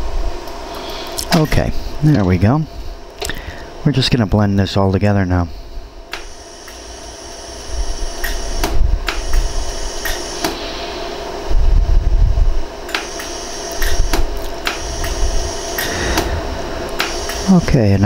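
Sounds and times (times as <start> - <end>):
steady machine hum: 0.0 - 18.0
laser welder snapping: 6.1 - 6.9, 8.2 - 10.6, 12.9 - 17.6.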